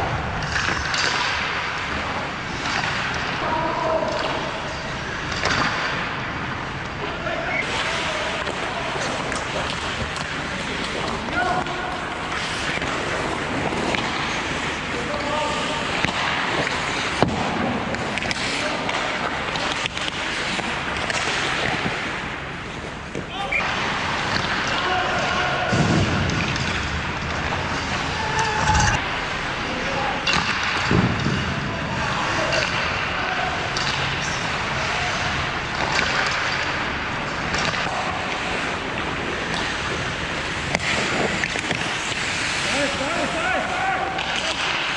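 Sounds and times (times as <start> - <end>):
hockey sticks and puck clacking: 0.0 - 44.9
skate blades scraping on ice: 7.6 - 24.7, 34.3 - 44.9
hockey sticks and puck knocking: 8.4 - 22.2, 35.7 - 43.0.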